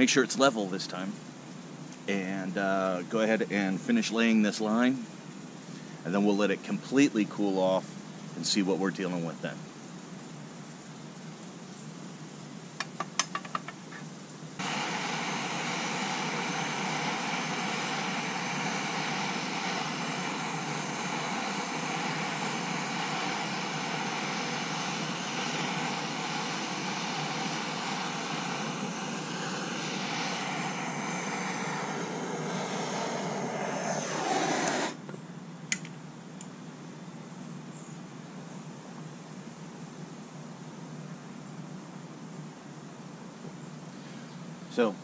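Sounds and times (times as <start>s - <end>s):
torch flame hissing: 14.6s - 35.0s
torch igniting click: 14.6s - 35.1s.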